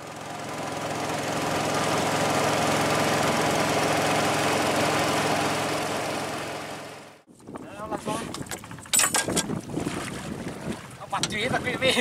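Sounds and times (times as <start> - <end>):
wind whirligig droning hum: 7.4 - 12.0.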